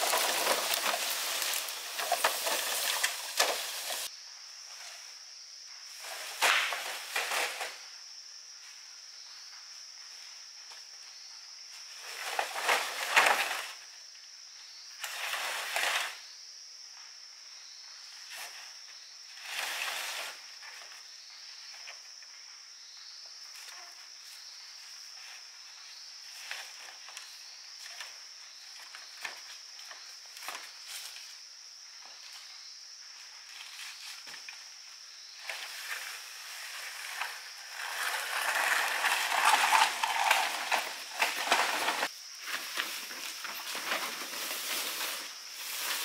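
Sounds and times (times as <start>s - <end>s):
bamboo poles scraping through dry leaves: 0.0s - 4.1s, 6.0s - 7.8s, 11.9s - 13.8s, 15.0s - 16.2s, 19.3s - 20.9s, 35.4s - 46.0s
high insect buzz: 0.0s - 46.0s.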